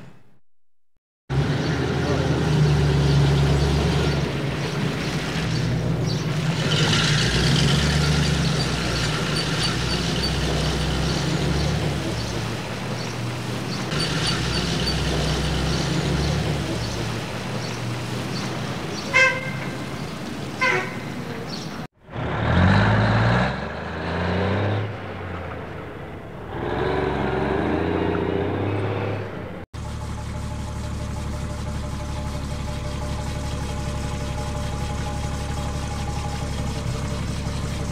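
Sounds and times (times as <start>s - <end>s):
truck engine running and revving: 1.3s - 20.6s, 21.5s - 37.9s
truck horn toots: 19.0s - 20.0s, 20.6s - 21.4s.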